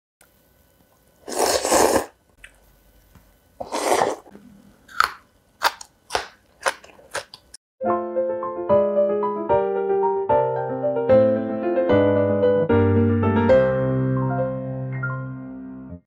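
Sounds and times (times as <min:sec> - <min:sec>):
piano music: 0:07.8 - 0:16.0.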